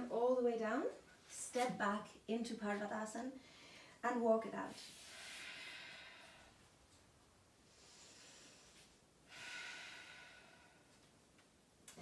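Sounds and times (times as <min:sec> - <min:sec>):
breathing close to microphone: 0:07.7 - 0:11.0.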